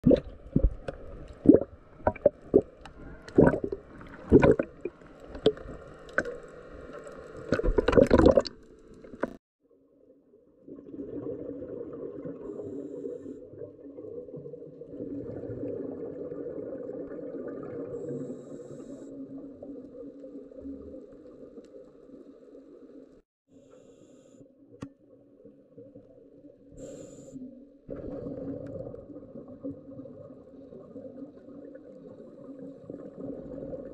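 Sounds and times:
underwater breath bubbling: 0:00.0 - 0:06.5, 0:14.9 - 0:19.6, 0:26.8 - 0:29.3
water splashing against camera: 0:00.0 - 0:09.4.

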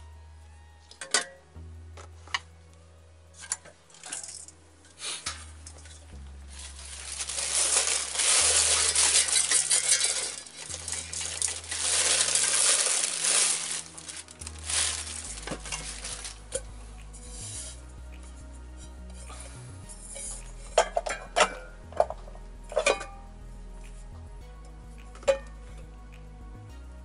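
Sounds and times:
scraping and rustling of parts: 0:03.4 - 0:16.6.

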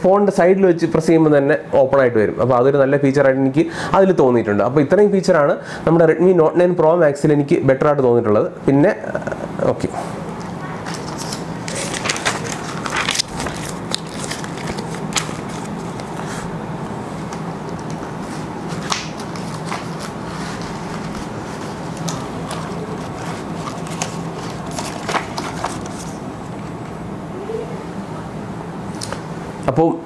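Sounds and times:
steady low hum: 0:00.0 - 0:30.0
paper rustling: 0:10.8 - 0:16.5, 0:17.3 - 0:26.7.

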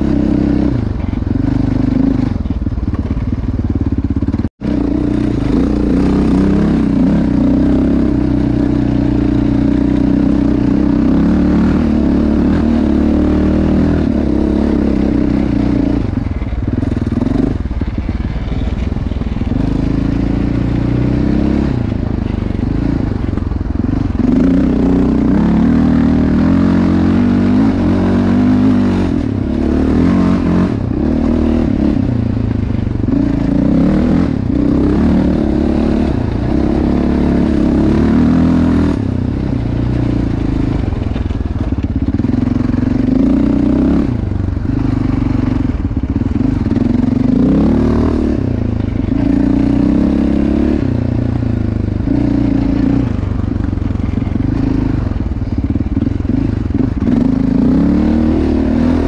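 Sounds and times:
quad engine revving: 0:00.0 - 0:02.5, 0:04.0 - 0:59.0.

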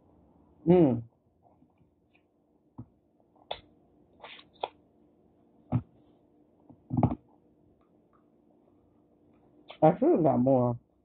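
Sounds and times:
voiced mouth sound: 0:06.9 - 0:07.2.

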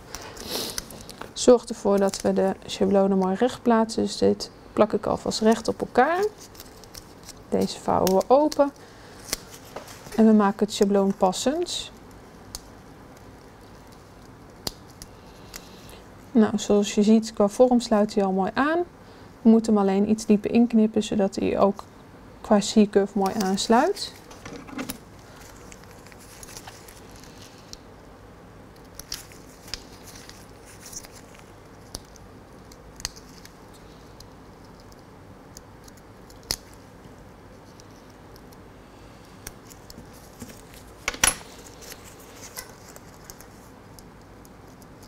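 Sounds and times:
small scissors snipping paper: 0:05.4 - 0:09.6, 0:10.8 - 0:15.7, 0:28.7 - 0:36.8
paper rustling: 0:24.2 - 0:27.7, 0:29.0 - 0:32.0, 0:39.7 - 0:43.7.

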